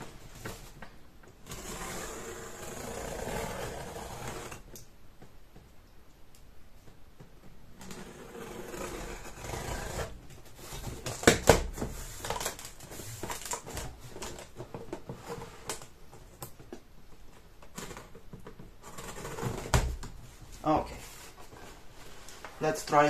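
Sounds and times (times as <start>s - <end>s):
packing tape being slit and torn: 11.0s - 14.5s.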